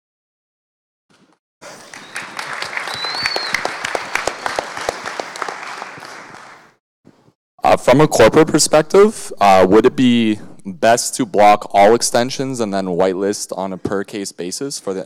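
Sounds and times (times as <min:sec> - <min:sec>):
audience applauding: 0:01.6 - 0:06.8
high whistle-like tone: 0:02.0 - 0:03.7.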